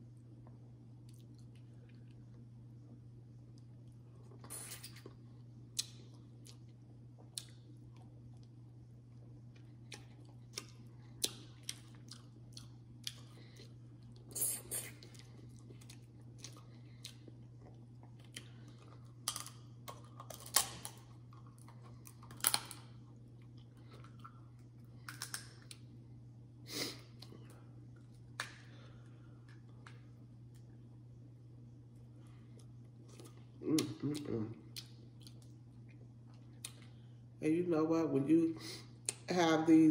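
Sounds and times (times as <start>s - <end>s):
low steady hum: 0.0s - 39.9s
wet chewing: 9.2s - 25.8s
crab shell cracking: 25.1s - 25.8s.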